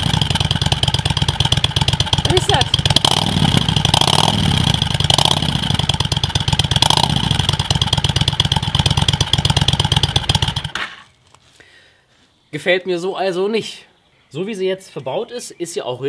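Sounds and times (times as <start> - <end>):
motorcycle engine idling: 0.0 - 11.1
motorcycle throttle blips: 0.0 - 11.1.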